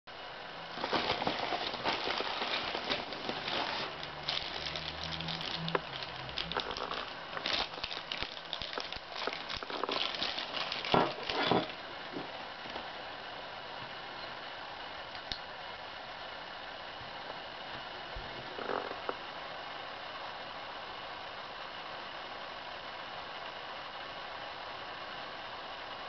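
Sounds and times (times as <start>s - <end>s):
plastic bag crinkling: 0.7s - 11.8s.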